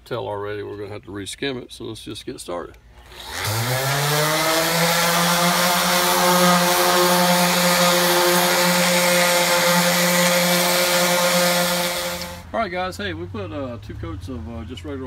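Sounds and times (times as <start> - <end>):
orbital sander running: 3.1 - 12.4.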